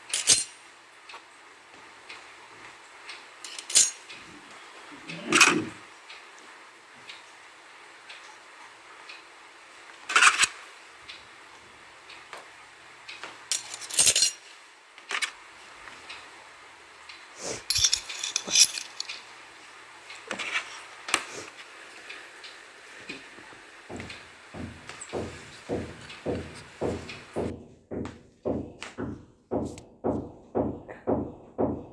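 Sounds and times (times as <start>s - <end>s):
small metal utensils clinking: 3.4s - 4.1s, 13.5s - 14.5s, 17.6s - 19.3s.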